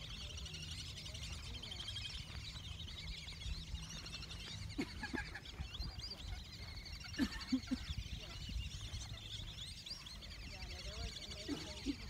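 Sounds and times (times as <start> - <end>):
water birds chattering: 0.0 - 12.0.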